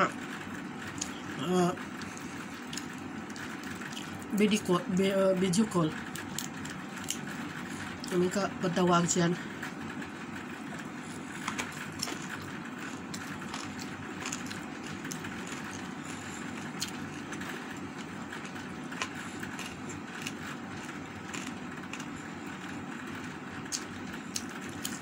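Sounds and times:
steady background noise: 0.0 - 25.0
person chewing with mouth clicks: 10.8 - 22.2, 23.7 - 25.0.

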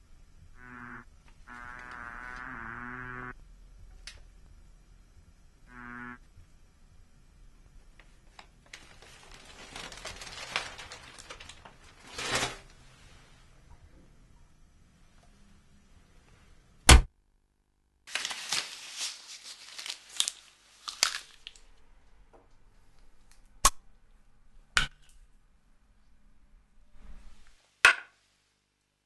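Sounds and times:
rustling of small objects: 8.2 - 12.8, 18.1 - 21.8.

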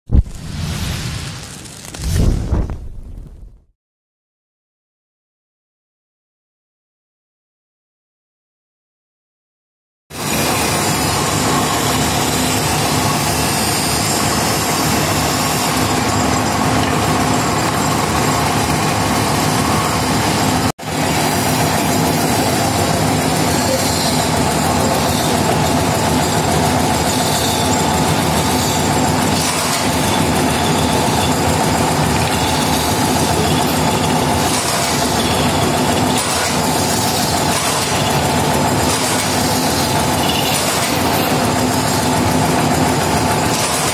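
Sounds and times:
metal-spinning lathe running: 10.2 - 43.9.

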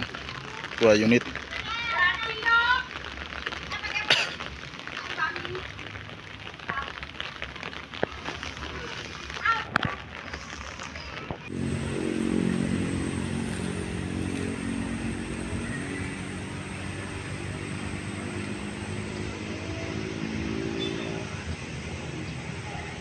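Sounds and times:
diesel bus engine droning: 11.5 - 20.3.

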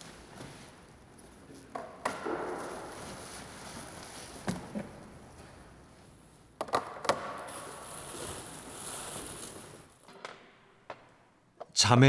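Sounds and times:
plastic packing rustling: 7.5 - 9.9.

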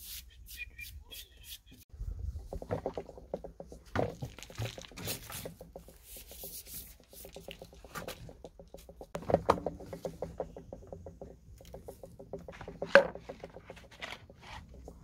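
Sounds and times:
vacuum hose handling clicks and rubs: 2.5 - 15.0.

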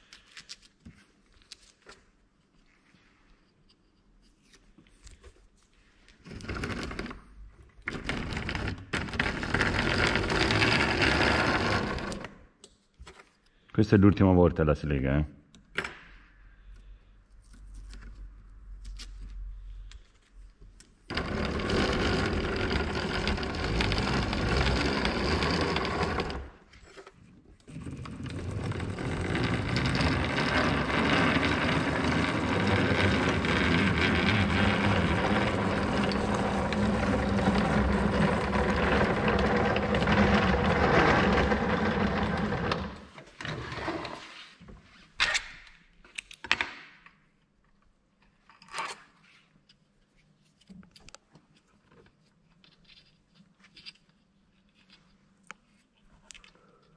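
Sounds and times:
hand-cranked rod binder whirring: 6.3 - 7.2, 7.8 - 12.3, 21.1 - 44.2.

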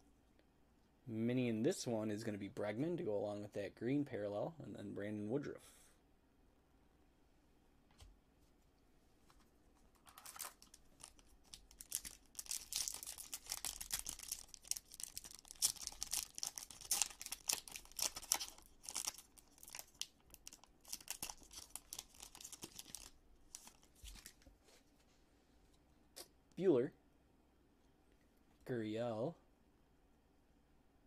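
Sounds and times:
foil wrapper tearing and crinkling: 10.0 - 24.3.

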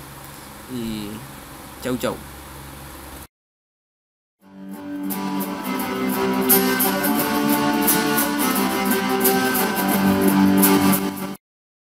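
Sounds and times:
guitar music: 4.5 - 11.4.

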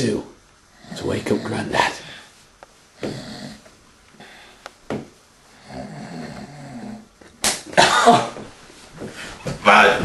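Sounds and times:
man snoring: 3.0 - 3.7, 5.6 - 7.1.

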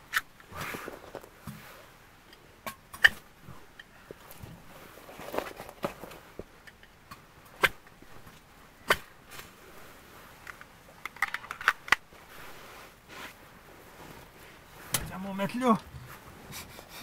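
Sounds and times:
fire crackling: 0.0 - 17.0
sharp pops of fire: 7.4 - 8.1, 8.8 - 9.5.

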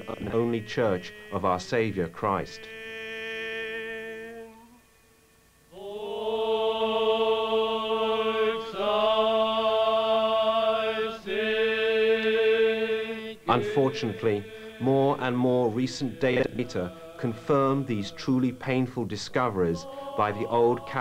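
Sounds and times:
man chanting into a microphone: 0.0 - 4.7, 13.5 - 21.0.

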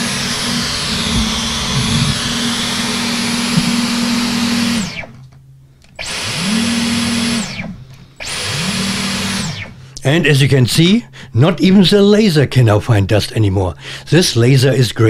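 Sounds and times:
vacuum cleaner motor whining: 0.0 - 9.8.

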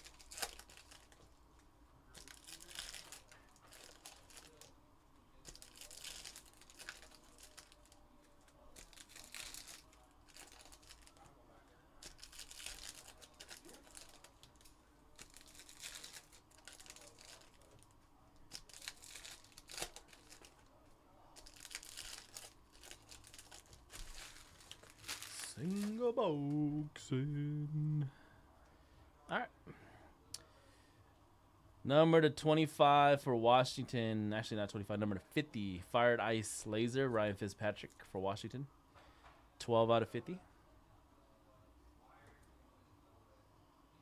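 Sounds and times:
foil wrappers tearing and crinkling: 0.0 - 1.2, 2.1 - 4.7, 5.5 - 8.0, 8.6 - 11.2, 12.0 - 17.8, 18.4 - 20.7, 21.4 - 26.1.

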